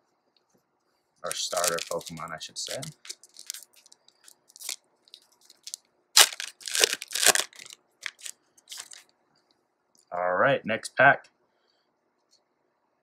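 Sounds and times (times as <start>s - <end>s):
foil wrapper tearing and crinkling: 1.3s - 9.0s.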